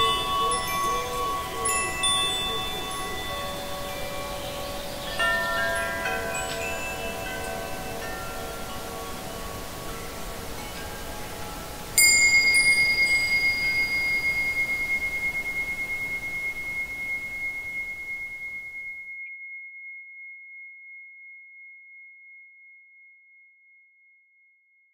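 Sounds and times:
high-pitched chime ringing: 0:00.0 - 0:19.4
faint chime tones: 0:00.0 - 0:22.9.

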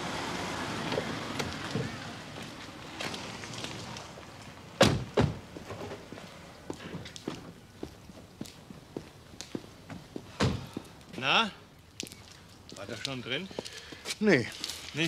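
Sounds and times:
light footsteps on street: 0:00.5 - 0:15.0
car doors shutting: 0:00.6 - 0:02.4, 0:04.8 - 0:06.0.

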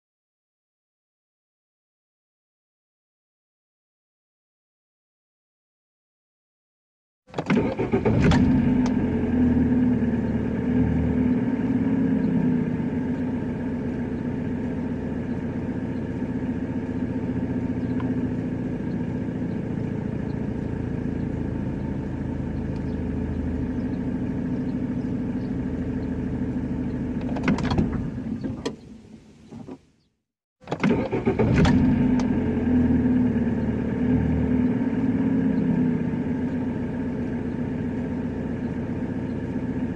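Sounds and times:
car engine starting and idling: 0:07.3 - 0:30.0, 0:30.6 - 0:39.9.

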